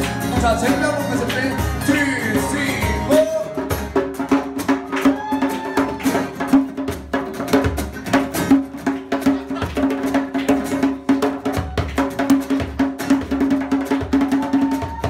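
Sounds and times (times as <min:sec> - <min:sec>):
held chord: 0:00.0 - 0:03.9.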